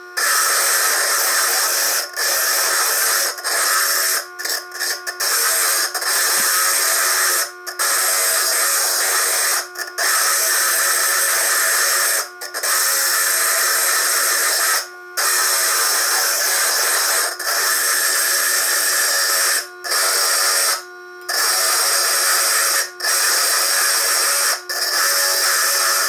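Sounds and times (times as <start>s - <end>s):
high-pitched grinding whine: 0.0s - 26.0s.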